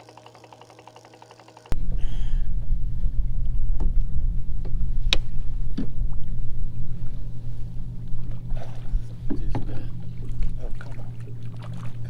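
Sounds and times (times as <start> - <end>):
boat motor humming: 0.0 - 1.8.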